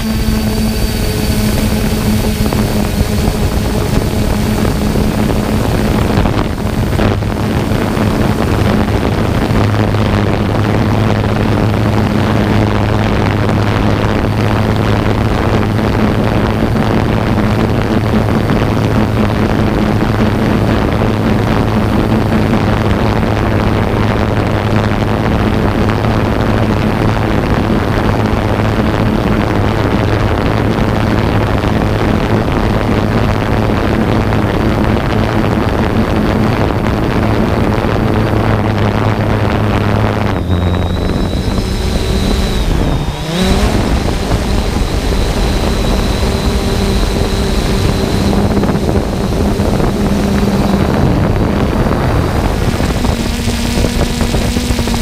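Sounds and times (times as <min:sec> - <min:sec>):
quadcopter propellers humming: 0:00.0 - 0:55.0
thin high whine: 0:00.0 - 0:55.0
wind noise on microphone: 0:00.0 - 0:55.0.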